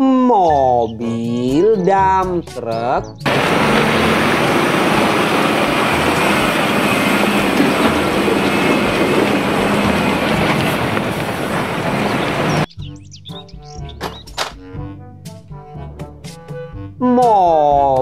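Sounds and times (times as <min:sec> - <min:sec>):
heavy vehicle rumble: 0:03.2 - 0:12.7.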